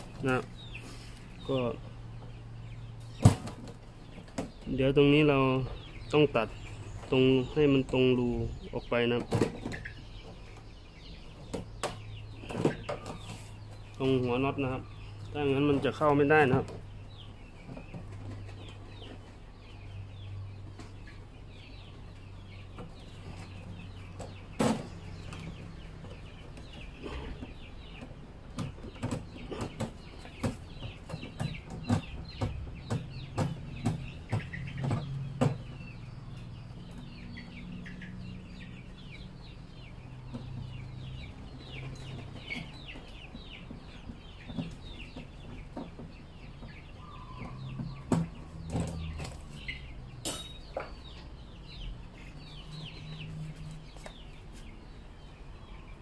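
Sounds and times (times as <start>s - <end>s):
birds chirping and clucking: 0.0s - 56.0s.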